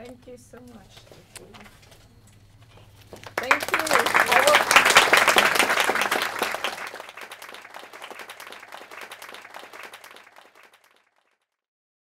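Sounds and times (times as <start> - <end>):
audience applauding: 3.2 - 11.4.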